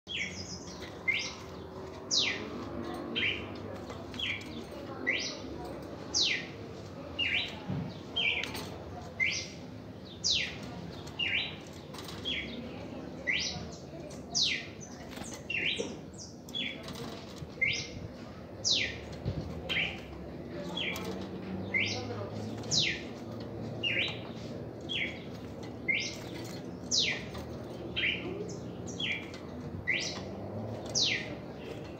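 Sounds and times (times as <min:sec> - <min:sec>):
bird whistling song: 0:28.9 - 0:30.2.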